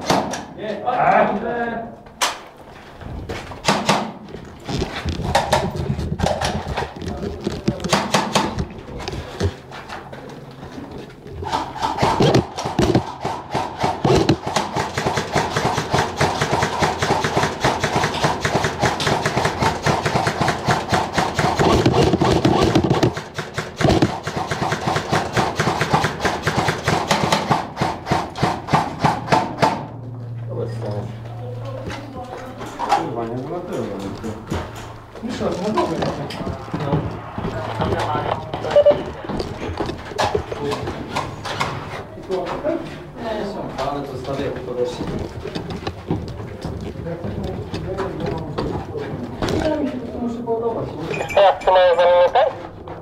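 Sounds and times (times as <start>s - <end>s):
airsoft rifles firing: 3.6s - 4.2s, 7.9s - 8.6s, 11.4s - 29.9s.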